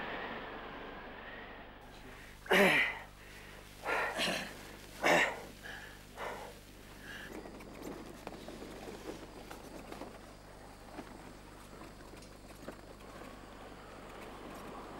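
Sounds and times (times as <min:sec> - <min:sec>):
steady wind: 0:00.0 - 0:14.9
breaths and sniffs: 0:01.9 - 0:10.4
person coughing: 0:02.5 - 0:03.1, 0:03.9 - 0:05.5.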